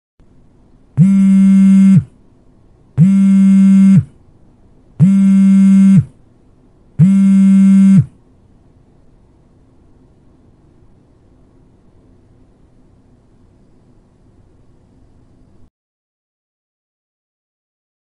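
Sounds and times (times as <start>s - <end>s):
mobile phone vibrating on hard surface: 1.0s - 2.1s, 3.0s - 4.1s, 5.0s - 6.1s, 7.0s - 8.1s.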